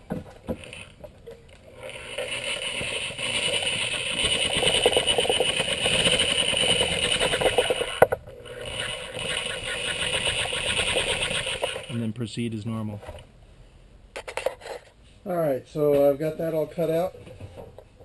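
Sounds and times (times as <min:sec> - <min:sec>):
electric shears cutting metal: 0:01.8 - 0:12.0.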